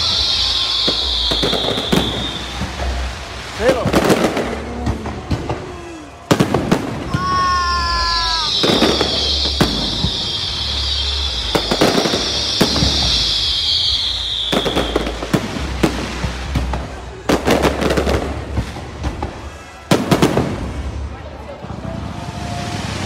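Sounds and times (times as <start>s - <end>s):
fireworks hissing crackle: 0.0s - 23.0s
firework shells bursting: 8.1s - 20.9s.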